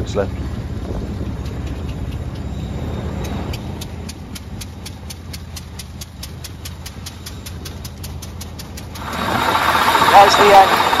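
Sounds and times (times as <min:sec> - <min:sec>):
regular ticking: 0:01.2 - 0:11.0
old car engine running: 0:03.2 - 0:11.0.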